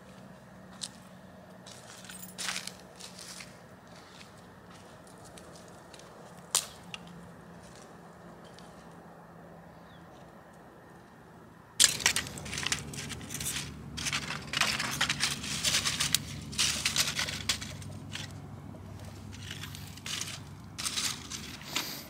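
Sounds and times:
dry leaves and twigs crackling: 0.7 - 9.0, 11.8 - 22.0.

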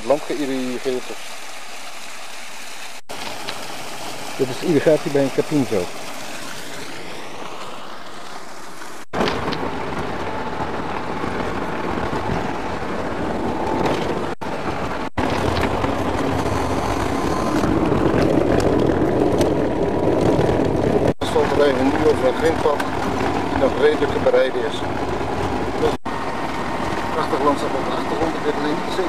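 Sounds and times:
water gushing from channel: 0.0 - 29.0
vehicle road noise: 6.6 - 29.0.

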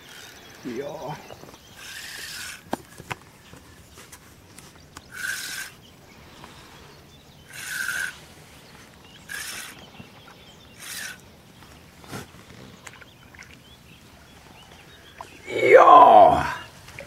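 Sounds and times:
fishing reel winding: 1.8 - 2.7, 5.1 - 5.8, 7.5 - 8.2, 9.3 - 9.8, 10.8 - 11.2.

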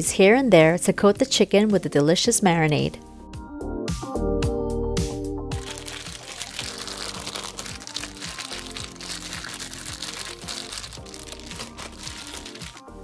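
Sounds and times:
background music with bass beat: 3.0 - 13.0
plastic bag crinkling: 5.6 - 13.0.

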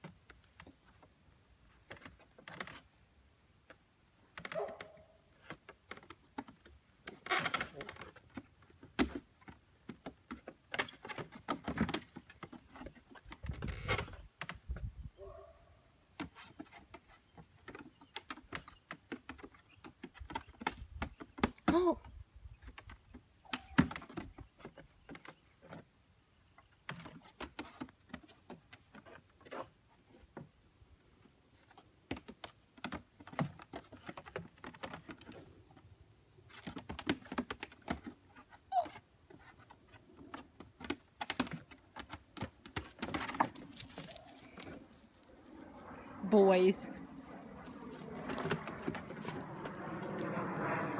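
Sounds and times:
goat hooves on wooden boards: 8.0 - 15.0, 36.4 - 46.0, 47.0 - 50.6.

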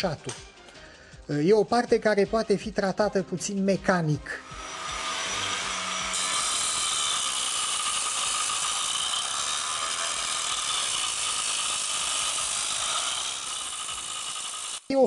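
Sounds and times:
angle grinder cutting stone: 4.3 - 15.0.

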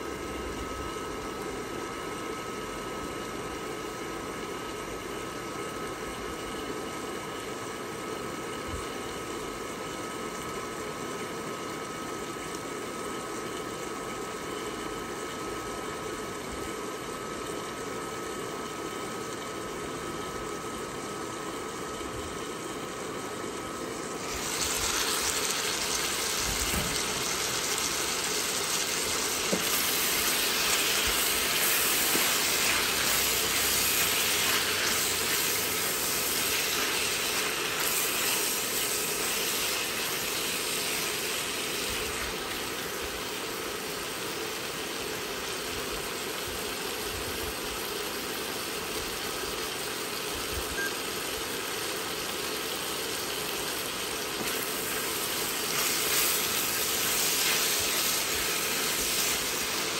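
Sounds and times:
liquid boiling under a lid: 0.0 - 59.9
sauce sizzling in a pan: 24.2 - 45.6, 51.5 - 59.9.

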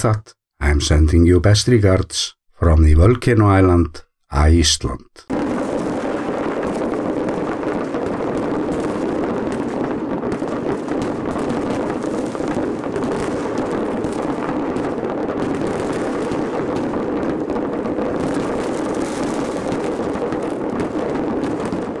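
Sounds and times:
fireworks bangs and crackles: 5.2 - 22.0.

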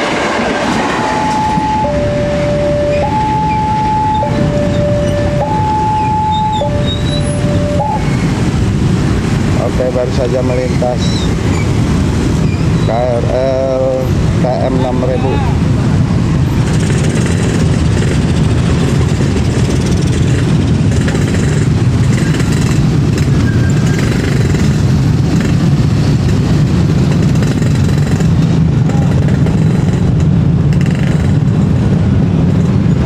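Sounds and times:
motorcycle and car engines rumbling: 0.0 - 33.0.

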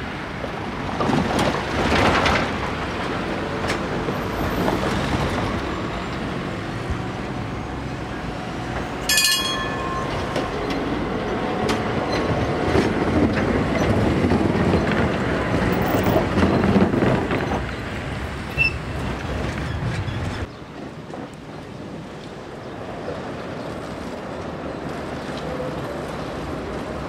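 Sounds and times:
tram wheels rumbling on rails: 0.0 - 27.0
short bright ringing tone: 9.1 - 10.6.

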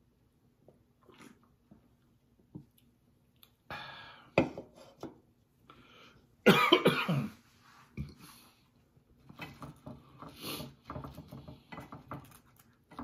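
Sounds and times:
man coughing: 6.4 - 7.4.

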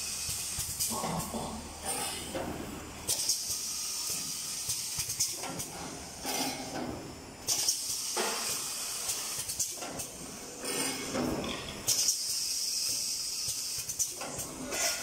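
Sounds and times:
compressed air hisses: 3.2 - 5.0, 7.5 - 9.6.

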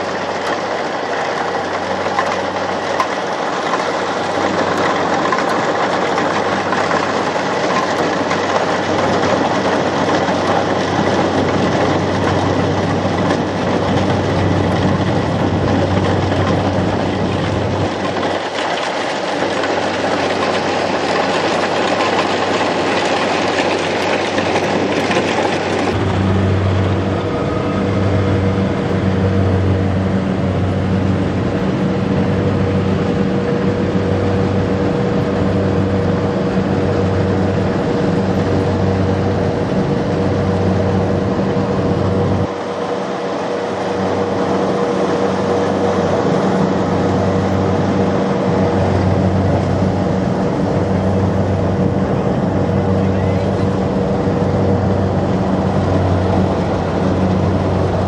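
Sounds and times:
combine harvester running: 0.0 - 58.0
low rising and falling throb: 25.9 - 42.5.

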